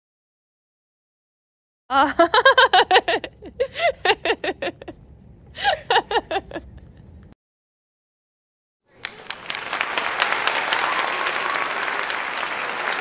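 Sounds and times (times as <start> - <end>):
woman laughing: 1.9 - 7.0.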